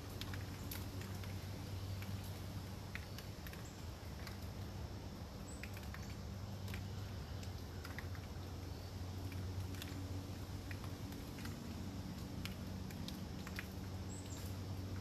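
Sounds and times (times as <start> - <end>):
raindrops pattering on leaves: 0.0 - 15.0.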